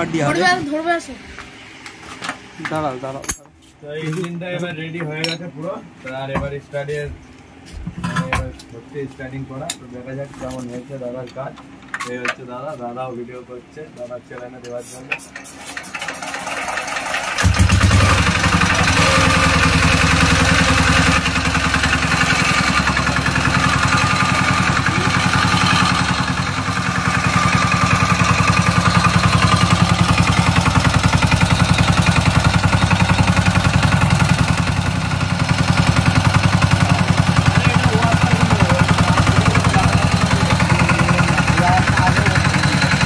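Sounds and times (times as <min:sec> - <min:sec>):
diesel engine running: 0:16.2 - 0:43.0.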